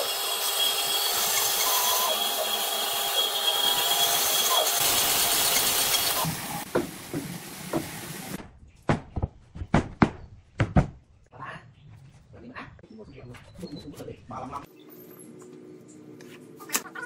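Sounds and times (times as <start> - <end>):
power tool working wood: 0.0 - 6.7.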